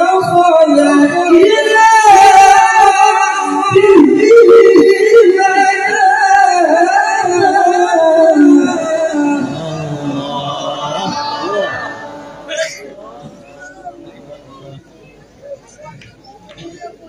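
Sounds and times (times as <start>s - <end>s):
man chanting into a microphone: 0.0s - 13.4s.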